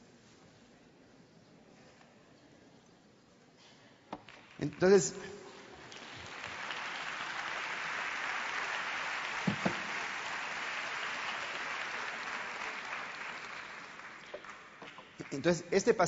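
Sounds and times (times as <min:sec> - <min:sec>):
audience applauding: 0:04.3 - 0:16.0.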